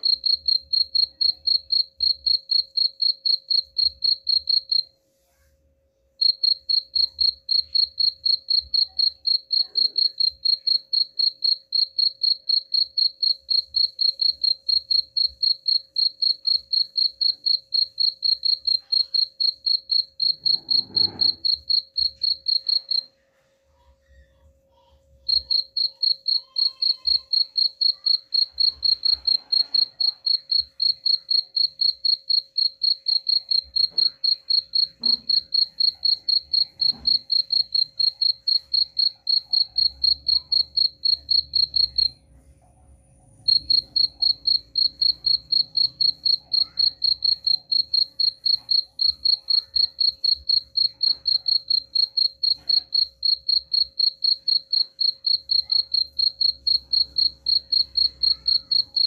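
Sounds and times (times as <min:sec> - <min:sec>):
cricket chirping: 0:00.0 - 0:04.9, 0:06.2 - 0:23.1, 0:25.3 - 0:42.2, 0:43.2 - 0:59.0.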